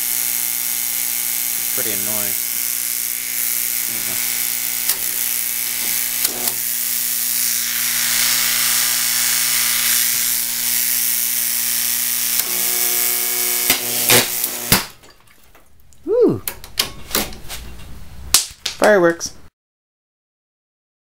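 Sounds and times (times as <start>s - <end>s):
transformer buzzing with mains hum: 0.0s - 15.0s.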